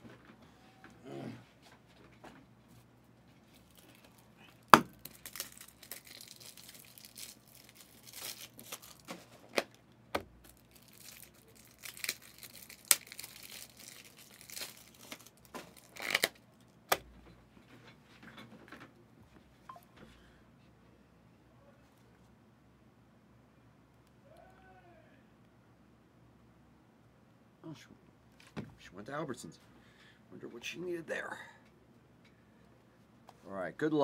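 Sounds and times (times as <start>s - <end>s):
plastic wrapping tearing and crinkling: 3.5s - 9.8s, 10.4s - 16.6s.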